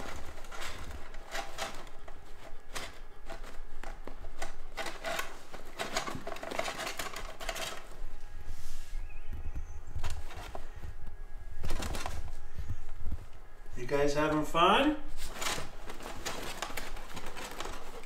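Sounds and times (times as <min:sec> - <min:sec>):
kitten scratching fabric tunnel: 0:00.0 - 0:03.8.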